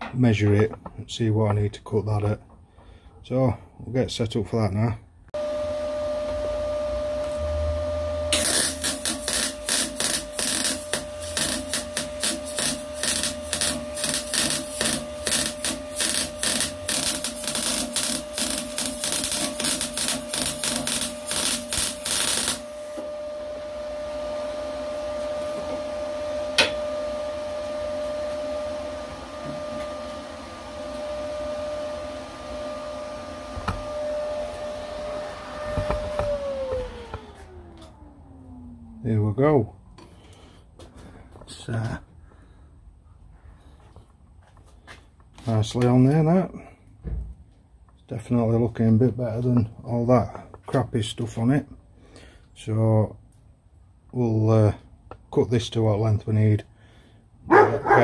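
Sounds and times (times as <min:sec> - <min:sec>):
steady hum: 0:05.3 - 0:43.3
mig welder crackling: 0:08.3 - 0:23.0.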